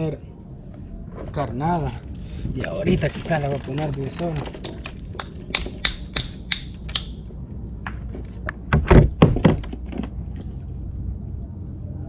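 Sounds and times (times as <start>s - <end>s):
sharp clicks: 5.1s - 7.3s
heavy thumps on plastic hull: 8.7s - 10.0s.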